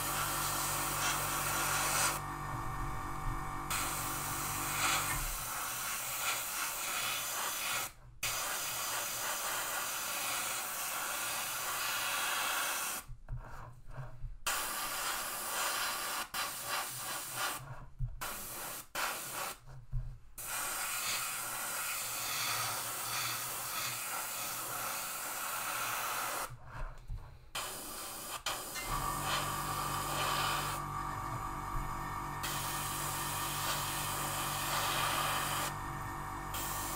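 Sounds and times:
airbrush spraying hiss: 0.0s - 2.2s, 3.7s - 13.1s, 14.5s - 17.6s, 18.2s - 19.6s, 20.4s - 26.5s, 27.6s - 30.8s, 32.4s - 35.7s, 36.5s - 36.9s.

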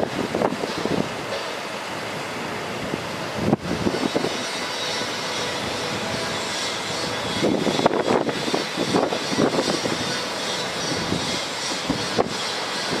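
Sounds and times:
diesel engine running: 0.0s - 13.0s
hydraulic hiss: 3.8s - 13.0s.

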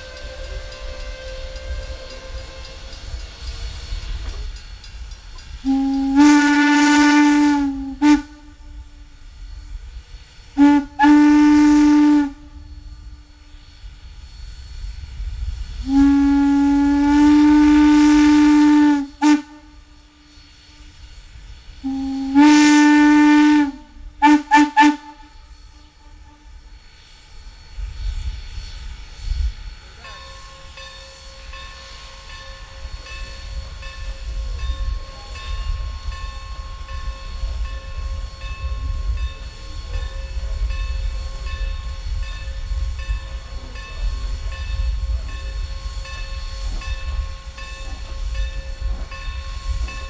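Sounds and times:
steam whistle blasts and toots: 0.0s - 4.3s, 5.6s - 15.0s, 15.6s - 27.3s
low rumble of running train: 0.0s - 50.0s.

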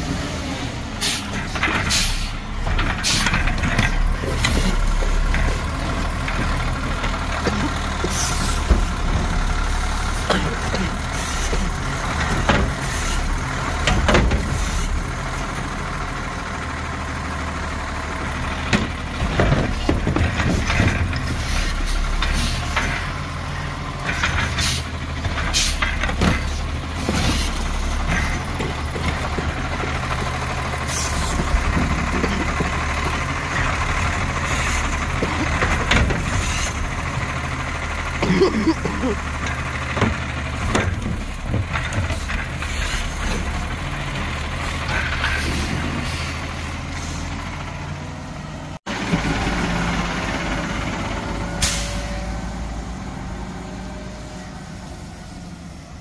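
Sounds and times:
garbage truck diesel engine: 0.0s - 56.0s
metal clanks: 24.0s - 37.6s.

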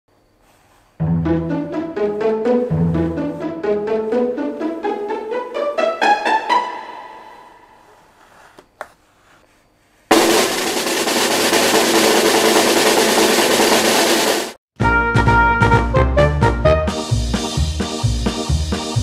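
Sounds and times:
musical jingle: 1.0s - 7.6s
drum roll: 10.1s - 15.9s.

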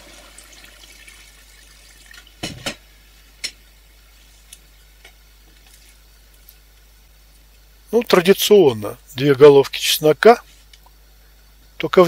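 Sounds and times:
low steady hiss: 0.0s - 12.0s
kitchenware knocking and clinking: 2.4s - 2.8s.

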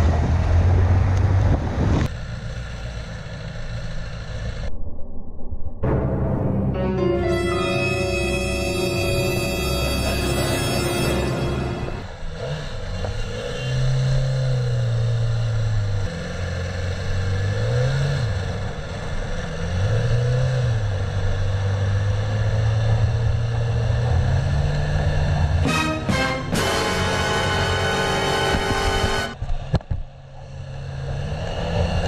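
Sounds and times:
wind and road noise: 0.0s - 5.9s, 12.0s - 32.0s
music of long held notes: 5.8s - 12.2s, 25.6s - 29.4s
motorcycle engine revving: 12.0s - 32.0s.

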